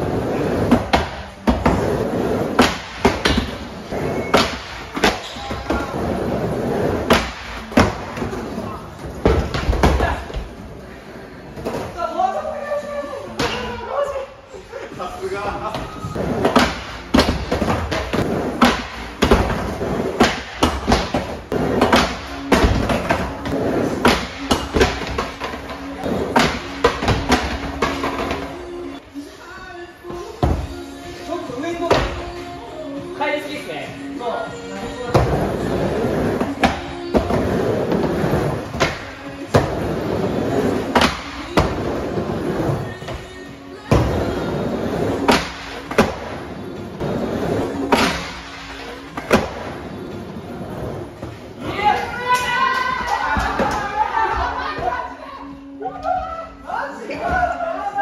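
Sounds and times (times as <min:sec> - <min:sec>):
skateboard wheels rolling on wood: 0:00.0 - 0:10.8, 0:35.2 - 0:43.3, 0:43.9 - 0:51.6
background music: 0:00.0 - 0:58.0.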